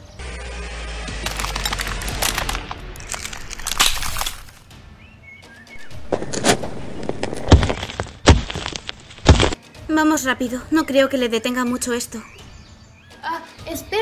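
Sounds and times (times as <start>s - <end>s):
rapid crackling strikes: 1.1s - 4.6s, 5.8s - 9.6s
heavy thud: 5.8s - 9.6s.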